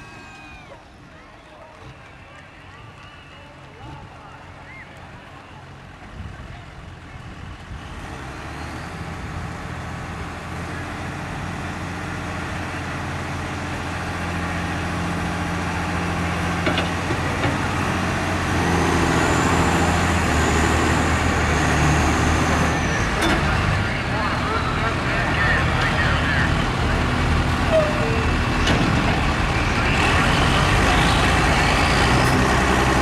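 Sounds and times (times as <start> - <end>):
truck engine under heavy load: 0.0 - 33.0.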